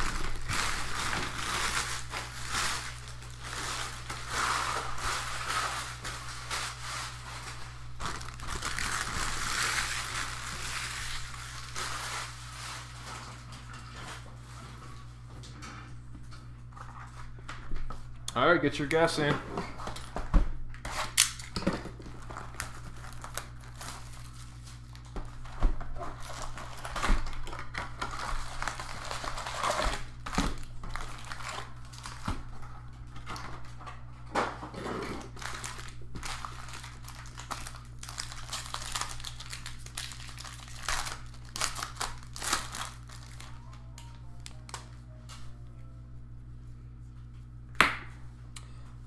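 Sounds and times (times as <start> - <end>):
card pack wrappers crinkling: 0.0 - 13.5, 22.1 - 25.5, 26.1 - 33.0, 35.3 - 45.0
cards rustling: 35.3 - 44.9
low hum: 35.4 - 49.0.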